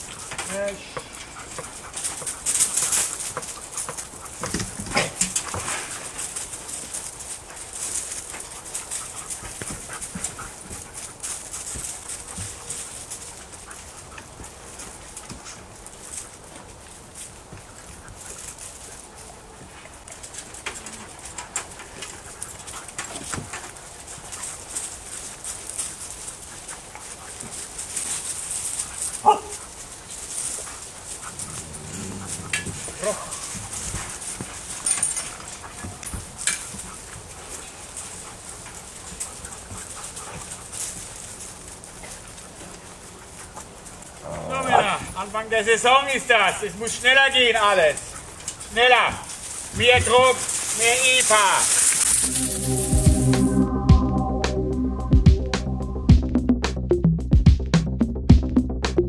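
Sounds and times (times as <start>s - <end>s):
rustle of dogs moving: 0.0s - 53.6s
dog barking: 29.2s - 29.6s.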